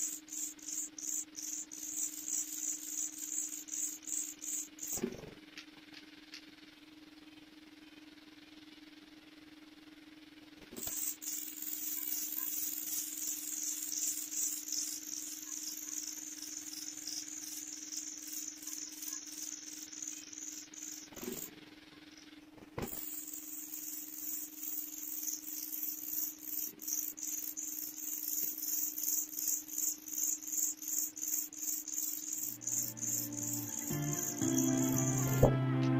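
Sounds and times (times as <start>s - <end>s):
nestlings begging squeaks: 0.0s - 5.0s, 10.8s - 21.5s, 22.9s - 35.5s.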